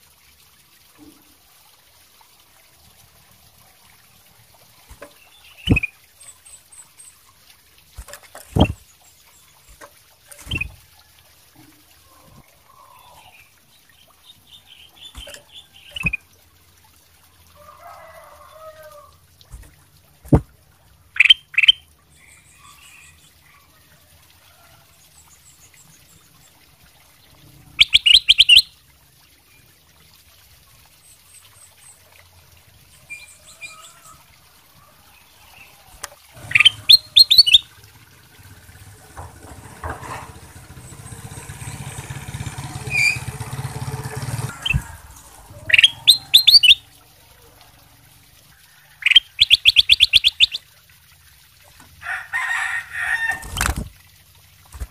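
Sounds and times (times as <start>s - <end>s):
bird chirping song: 5.2s - 7.2s, 21.2s - 23.4s, 27.8s - 28.7s, 36.4s - 37.7s, 44.5s - 46.9s, 49.0s - 50.6s.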